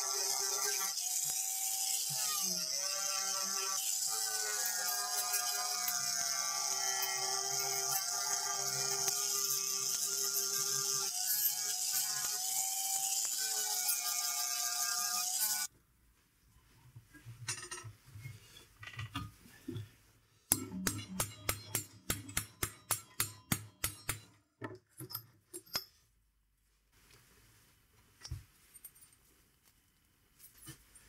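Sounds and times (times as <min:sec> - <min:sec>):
hammer striking sheet steel: 0:20.5 - 0:24.3.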